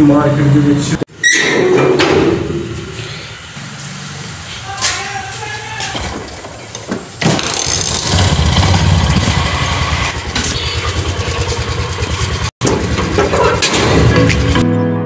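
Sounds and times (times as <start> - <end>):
scooter engine running: 6.2 - 14.6.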